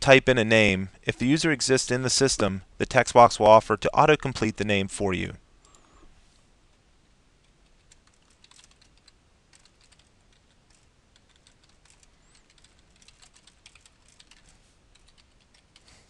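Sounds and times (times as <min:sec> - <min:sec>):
typing on computer keyboard: 0:07.4 - 0:15.9.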